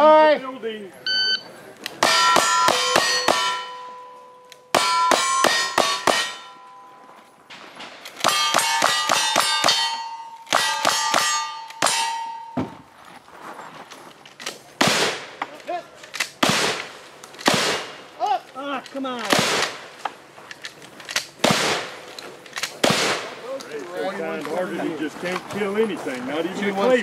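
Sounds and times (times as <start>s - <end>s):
steel target clanging: 2.0s - 7.1s, 8.2s - 12.8s
gunshots: 14.8s - 15.4s, 16.1s - 18.1s, 19.2s - 19.9s, 21.4s - 23.5s.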